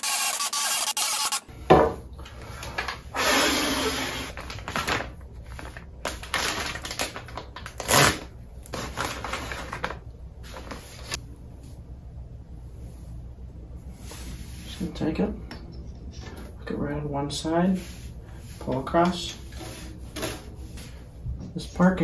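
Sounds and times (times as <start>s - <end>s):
cordless drill whirring: 0.0s - 1.5s, 3.1s - 4.4s
plastic bag crinkling: 4.3s - 10.0s.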